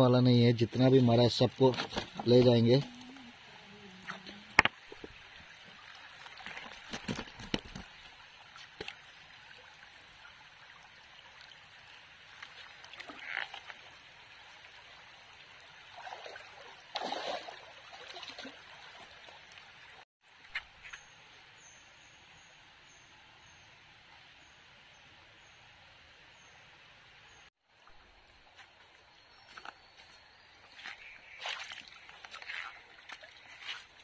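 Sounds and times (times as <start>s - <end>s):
stream trickling over stones: 0.3s - 20.0s, 30.6s - 34.0s
splashes and knocks among rocks: 1.0s - 3.0s, 4.0s - 9.1s, 15.9s - 19.7s, 30.8s - 34.0s.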